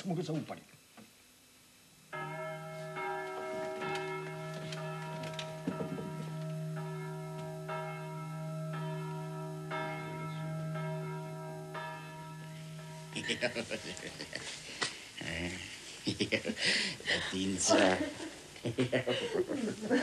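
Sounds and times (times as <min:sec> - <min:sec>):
steady low hum: 0:00.0 - 0:20.0
bells ringing: 0:02.1 - 0:14.6.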